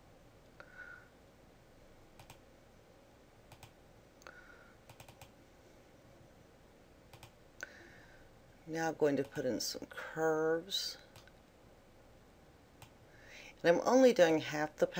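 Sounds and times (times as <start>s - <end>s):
computer mouse clicks: 2.2s - 2.4s, 3.5s - 3.8s, 4.9s - 5.4s, 7.1s - 7.4s, 11.1s - 11.4s.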